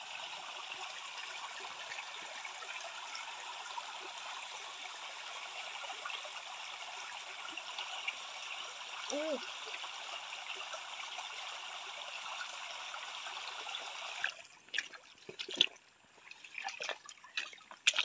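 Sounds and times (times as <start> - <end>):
stream water trickling: 0.0 - 18.0
water splashing: 14.1 - 18.0.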